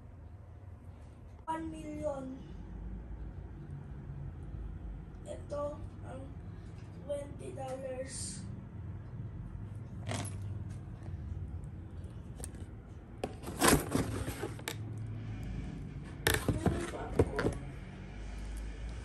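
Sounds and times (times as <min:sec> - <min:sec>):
low steady hum: 0:00.0 - 0:19.0
box and handbag being handled: 0:10.0 - 0:10.4, 0:12.2 - 0:14.8, 0:16.3 - 0:17.7.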